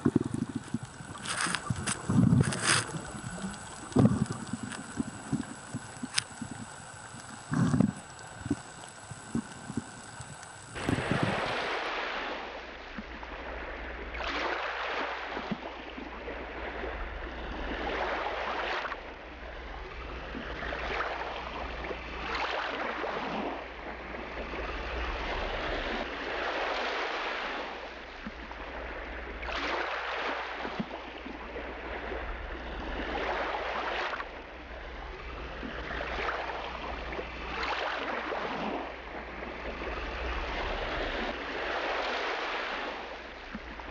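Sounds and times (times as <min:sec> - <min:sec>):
underwater seawater sloshing: 0:00.0 - 0:43.9.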